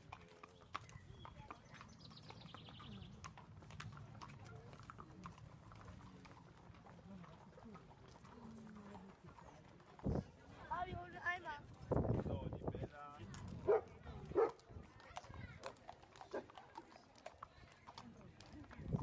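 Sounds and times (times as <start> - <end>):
hooves clip-clopping on paving stones: 0.0 - 19.0.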